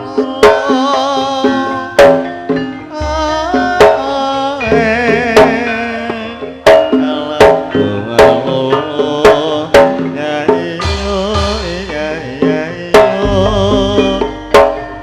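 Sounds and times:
hand drum strokes: 0.0 - 15.0
ringing bronze metallophones: 0.0 - 15.0
wavering melody line: 0.0 - 15.0
deep low tone: 13.2 - 14.9.

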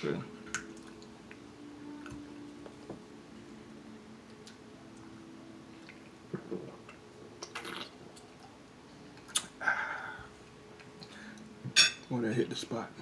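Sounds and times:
person gulping a drink: 5.8 - 8.0.

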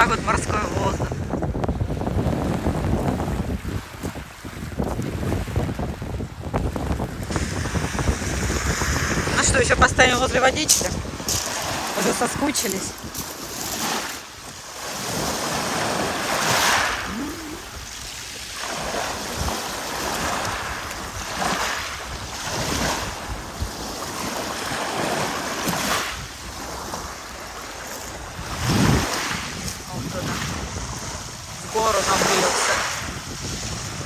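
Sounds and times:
waves washing on a pebble beach: 0.0 - 34.0
wind buffeting the microphone: 0.0 - 34.0.

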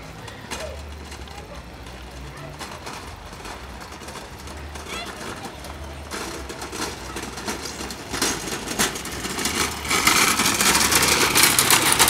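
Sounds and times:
clattering: 2.6 - 12.0
small motorcycle engine: 4.4 - 12.0.

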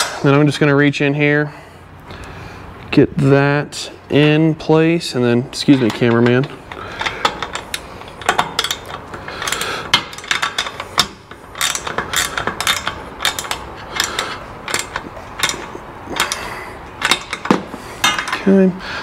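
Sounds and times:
socket ratchet clicking: 6.7 - 18.4.

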